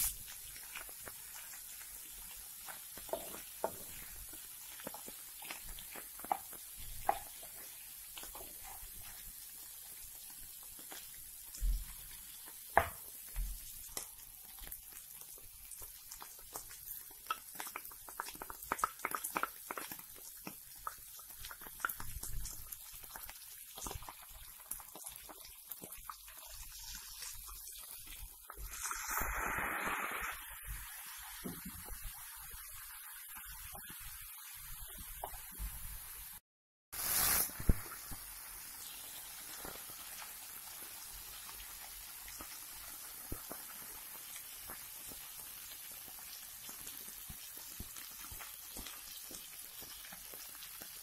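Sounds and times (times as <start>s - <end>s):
meat sizzling in a pan: 0.0s - 51.0s
burst of hissing: 28.6s - 31.4s, 37.0s - 38.2s.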